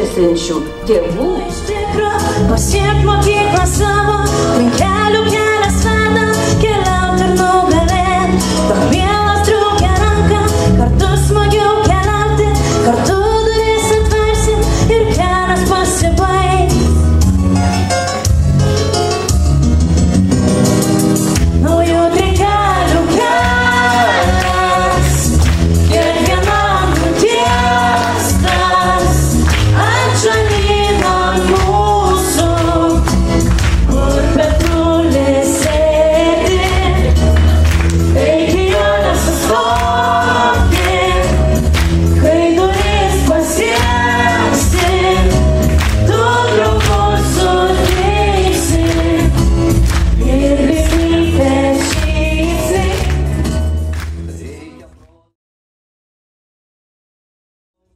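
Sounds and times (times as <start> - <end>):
amplified backing track: 0.0 - 55.0
children singing together: 25.9 - 33.0, 38.1 - 41.5, 42.2 - 45.5, 46.1 - 49.3.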